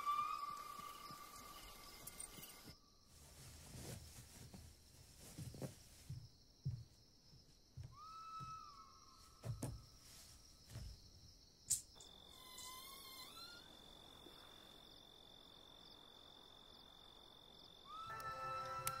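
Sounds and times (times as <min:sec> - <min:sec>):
crickets chirping: 0:00.0 - 0:19.0
steam engine whistle: 0:17.9 - 0:19.0.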